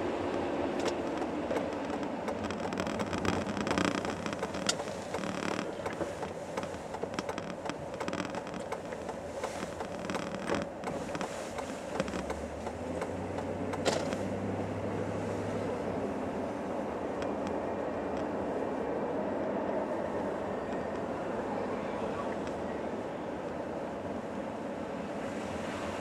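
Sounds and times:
engine and tyre noise in car: 0.0s - 26.0s
low engine hum: 0.0s - 26.0s
creaks and clicks: 0.2s - 14.3s, 17.0s - 18.3s.

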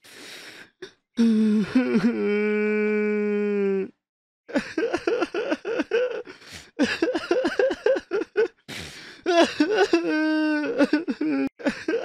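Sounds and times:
gasping in-breath: 0.0s - 1.8s, 6.3s - 6.8s, 8.7s - 9.3s
person sobbing: 1.2s - 3.9s, 4.5s - 12.0s.

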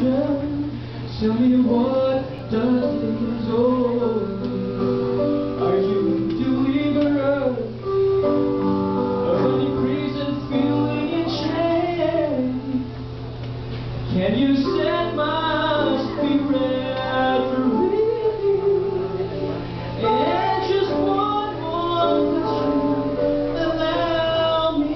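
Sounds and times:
vocal quartet singing: 14.1s - 24.9s.

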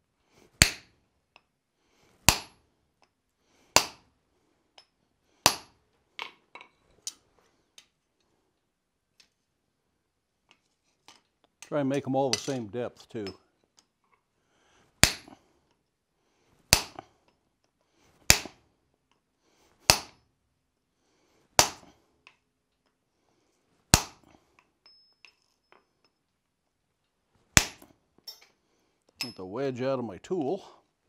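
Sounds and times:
hammer striking metal: 19.9s - 20.2s.

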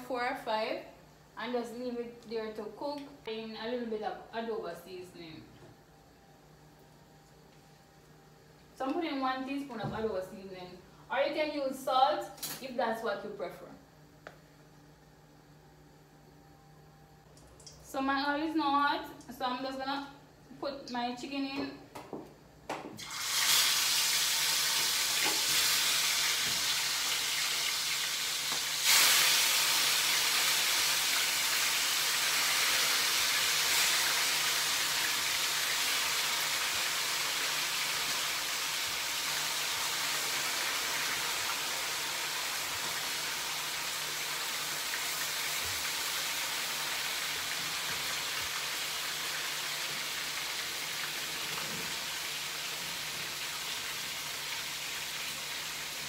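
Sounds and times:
chicken sizzling in hot oil: 23.0s - 56.0s.

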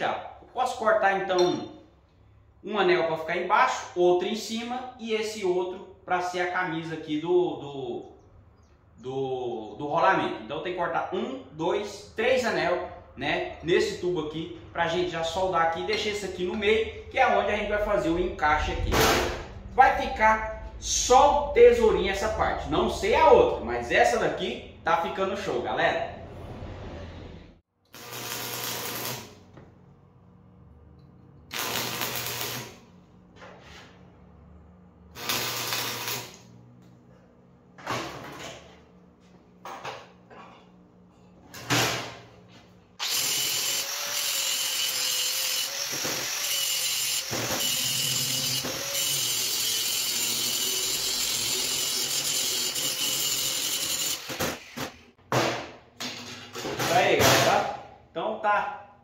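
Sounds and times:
electric arc welding crackle: 27.9s - 29.5s, 31.5s - 32.9s, 35.1s - 36.6s
angle grinder cutting metal: 28.0s - 29.3s, 31.5s - 32.7s, 35.2s - 36.4s, 43.0s - 54.4s.

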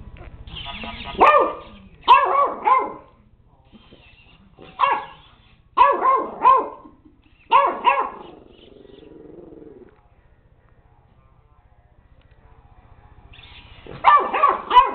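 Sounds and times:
puppy barking: 1.0s - 3.1s, 4.6s - 5.2s, 5.8s - 9.8s, 13.9s - 14.9s
low steady sound: 9.4s - 13.4s.

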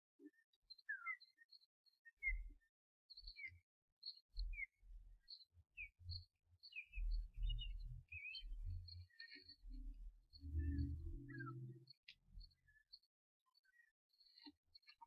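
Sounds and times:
low rumble: 10.4s - 11.7s
osprey high whistled chirps: 10.4s - 11.9s.

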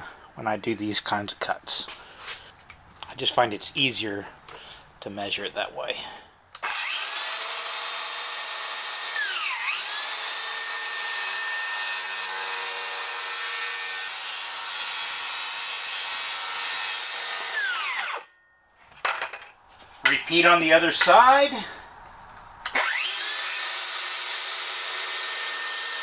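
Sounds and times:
circular saw cutting plywood: 6.6s - 18.3s, 22.7s - 26.0s.

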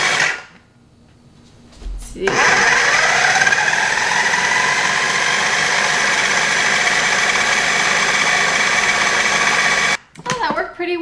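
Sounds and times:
food processor motor whining: 0.0s - 0.5s, 2.3s - 10.0s.

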